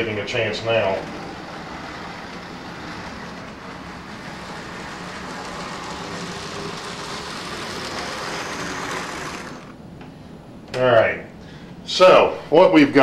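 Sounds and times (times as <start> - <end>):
model train motor hum: 0.0 - 9.8
wheels running on rails: 0.0 - 9.8.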